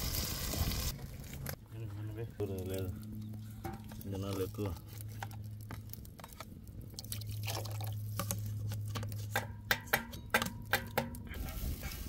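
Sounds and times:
liquid splashing in a pan: 4.9 - 9.1.

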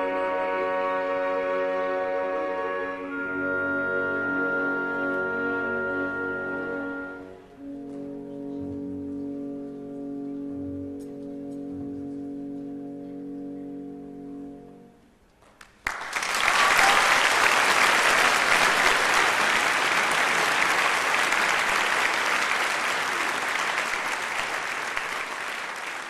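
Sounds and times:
audience applause: 15.6 - 26.0.

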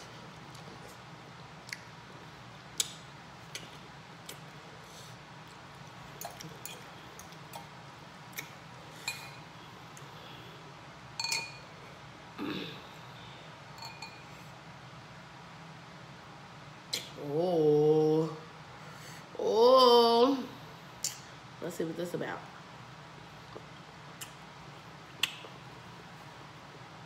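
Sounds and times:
fork clinking against glass bowl: 11.2 - 11.6, 13.8 - 14.3.

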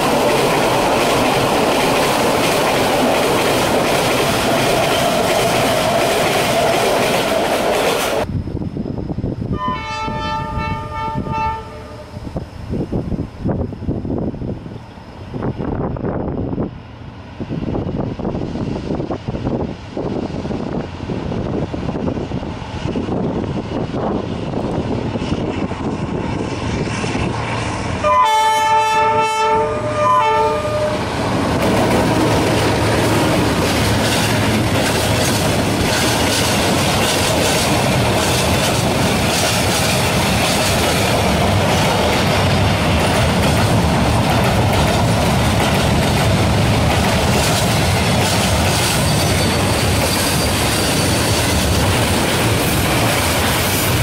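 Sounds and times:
wheels clacking on rails: 0.0 - 8.3, 18.3 - 54.0
train wagons rumbling past: 0.0 - 54.0
multi-tone train horn: 9.5 - 12.4, 28.0 - 31.4
diesel locomotive engine running: 11.5 - 54.0.

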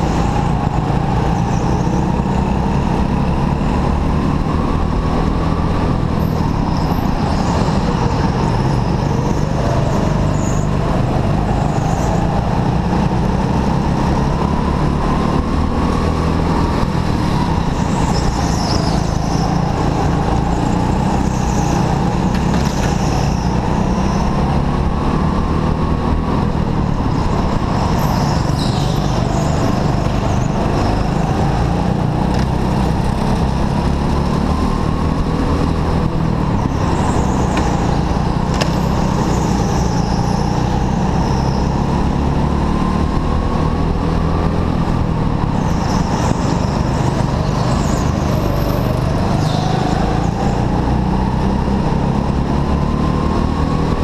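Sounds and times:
heavy rumble: 0.0 - 42.4
go-kart motor revving: 12.8 - 54.0.

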